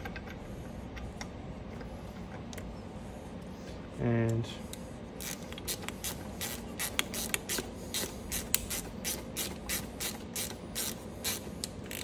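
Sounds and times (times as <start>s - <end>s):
hand ratchet clicking: 5.2s - 12.0s.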